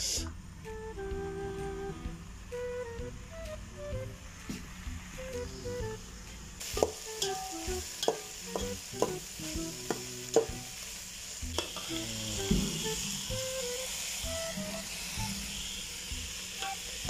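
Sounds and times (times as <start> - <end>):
meat and onions sizzling: 4.2 - 17.0.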